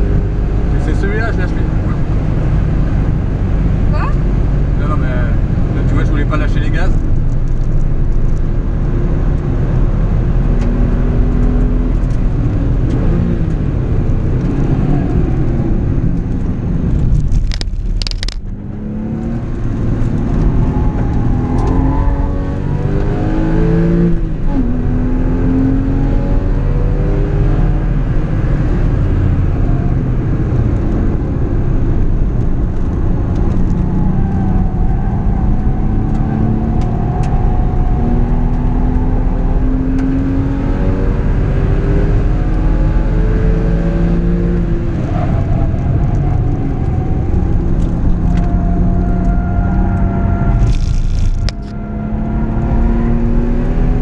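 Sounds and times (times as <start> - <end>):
car engine accelerating from cabin: 0.0 - 17.5, 18.1 - 54.0.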